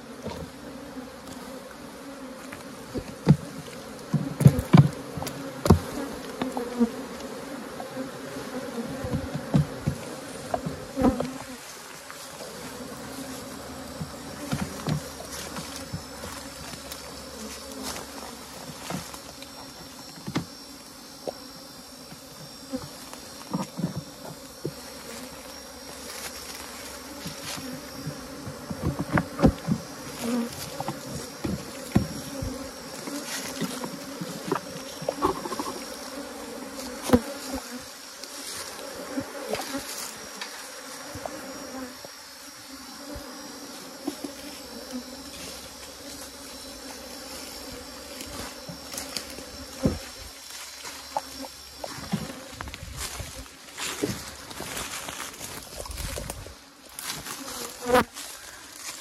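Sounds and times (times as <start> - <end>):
bees buzzing: 0.0 - 59.0
knocks and scrapes on wooden box: 8.9 - 11.4, 28.0 - 35.8.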